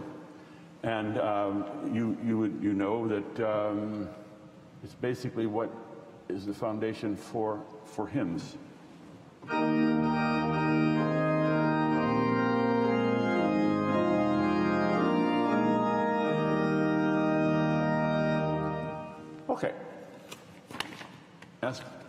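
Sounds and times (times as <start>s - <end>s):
pipe organ sustained chords: 0.0s - 4.3s, 9.4s - 19.6s
organ pedal bass line: 9.4s - 19.5s.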